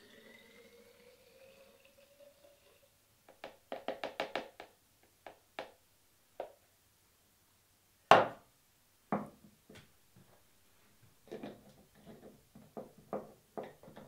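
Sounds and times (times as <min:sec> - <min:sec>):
juice pouring into glass bottle: 0:00.0 - 0:03.0.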